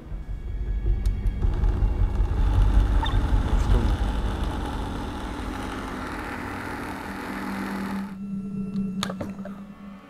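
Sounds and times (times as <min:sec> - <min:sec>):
blender motor running: 0:01.5 - 0:08.2.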